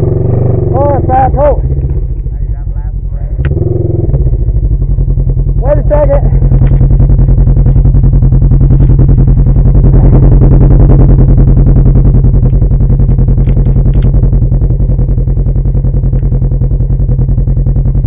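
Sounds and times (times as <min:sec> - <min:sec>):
engine running hard under load: 0:00.0 - 0:18.0.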